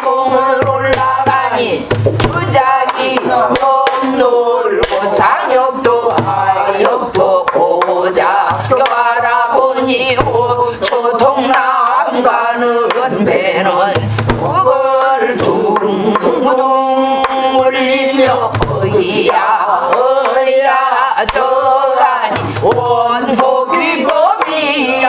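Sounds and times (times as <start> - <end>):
woman singing in wavering voice: 0.0 - 25.0
low drum thumps: 0.3 - 2.9, 5.1 - 10.6, 13.9 - 14.8, 18.2 - 20.4, 22.3 - 23.2.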